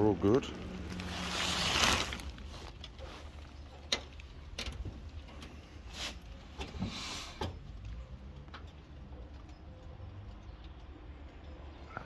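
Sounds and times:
plastic tarpaulin rustling: 0.0 - 3.8, 4.9 - 7.4.

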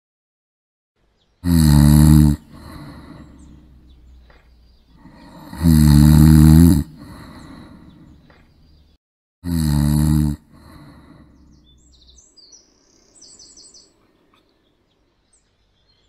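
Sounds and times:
person snoring: 1.4 - 3.8, 5.0 - 8.2, 9.4 - 11.4
quiet breathing: 1.8 - 8.8, 9.8 - 12.2.

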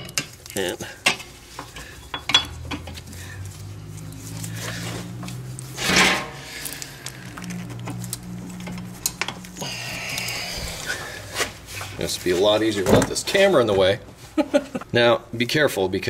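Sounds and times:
low steady hum: 0.0 - 12.2.

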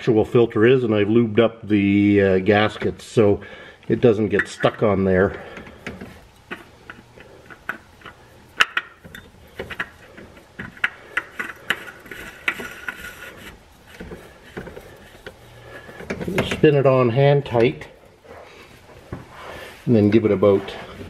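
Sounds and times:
oil filter clicking and scraping: 4.0 - 19.1.

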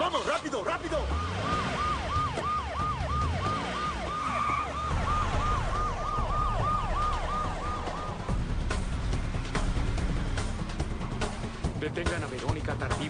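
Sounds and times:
car engines rumbling: 0.0 - 13.0
police siren yelp: 0.8 - 8.4.

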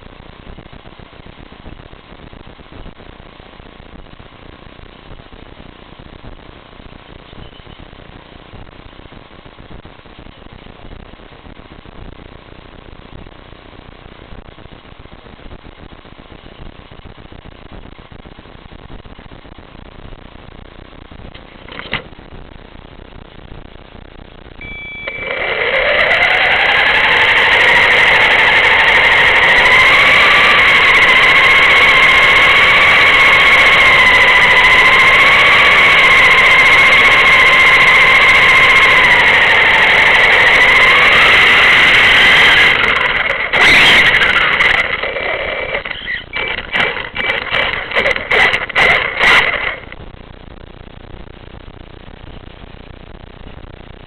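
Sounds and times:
electric motor whine: 24.6 - 50.0.

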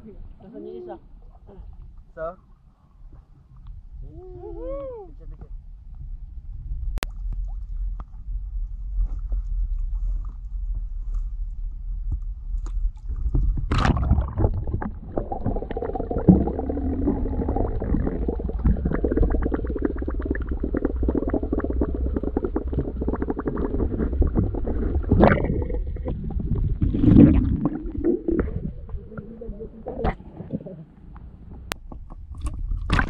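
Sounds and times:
muffled underwater rumble: 3.1 - 33.0
splash into water: 13.7 - 14.8.

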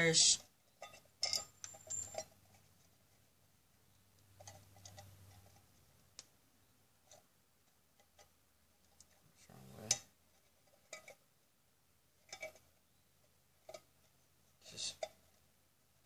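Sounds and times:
pliers and wire clicking on tin: 0.8 - 2.4.

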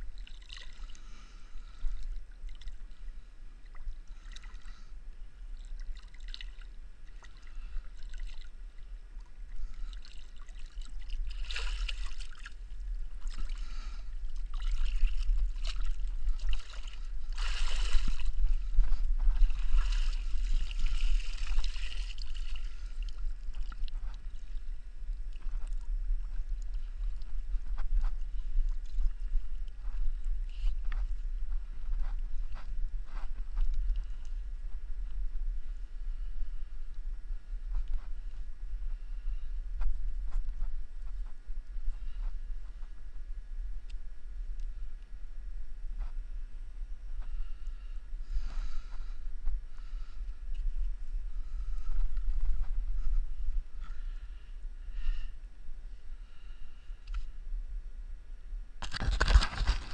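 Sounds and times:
steady low rumble: 0.0 - 59.9
water splashing and dripping: 0.2 - 0.9, 5.6 - 8.5, 9.8 - 12.6, 14.3 - 18.3, 19.2 - 24.1.

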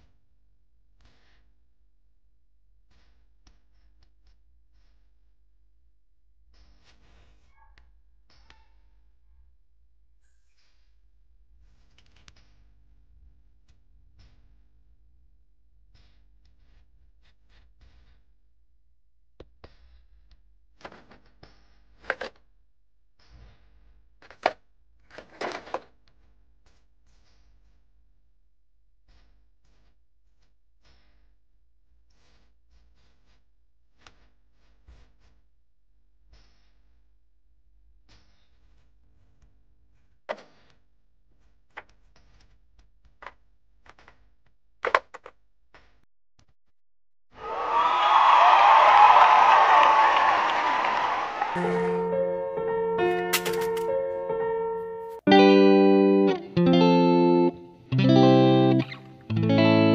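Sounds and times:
plastic toys clacking and knocking: 24.2 - 26.0, 43.2 - 45.9, 53.2 - 53.9
plastic toy knocking and scraping: 53.3 - 53.9.

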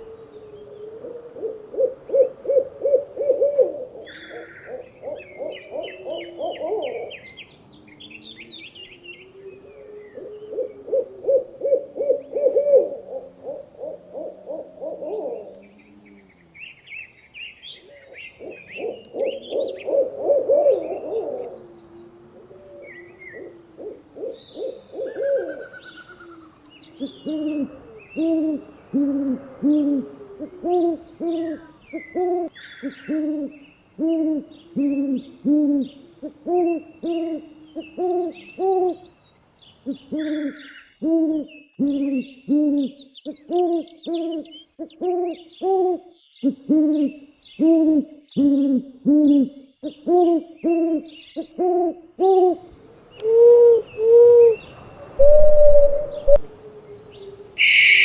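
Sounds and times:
owl hooting: 0.0 - 16.8, 17.8 - 39.1, 50.1 - 58.0
small birds chirping: 24.2 - 29.0, 29.6 - 51.6, 52.7 - 58.0.

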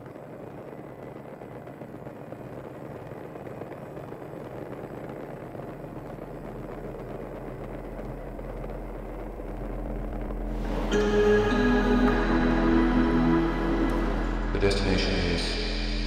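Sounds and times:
deep low hum: 5.4 - 16.0
bus engines rumbling: 10.0 - 16.0.

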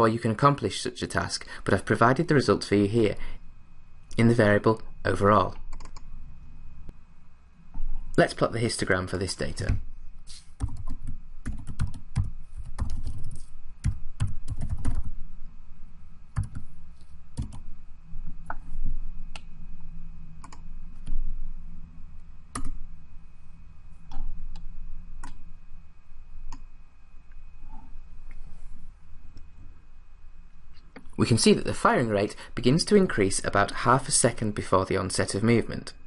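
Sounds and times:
typing on computer keyboard: 10.6 - 15.1, 16.4 - 16.7, 17.4 - 17.6.

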